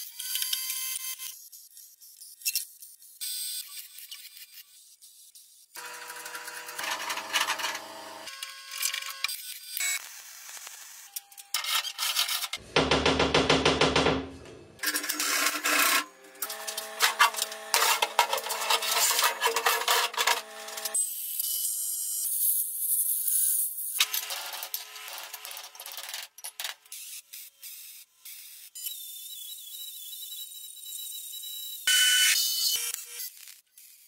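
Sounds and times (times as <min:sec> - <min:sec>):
welder arc buzzing and crackling: 0:05.8 - 0:11.1, 0:14.8 - 0:21.0, 0:24.0 - 0:26.4
scraping on steel: 0:06.1 - 0:07.9, 0:14.8 - 0:21.0.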